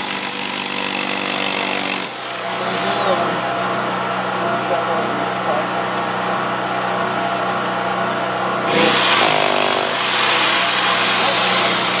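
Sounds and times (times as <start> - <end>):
rotary hammer drilling rock: 0.0 - 3.1, 8.7 - 12.0.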